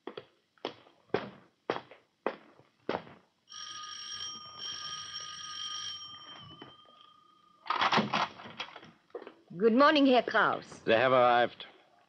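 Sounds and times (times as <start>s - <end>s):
footstep: 0.0s - 3.4s
electric doorbell ringing: 3.5s - 7.7s.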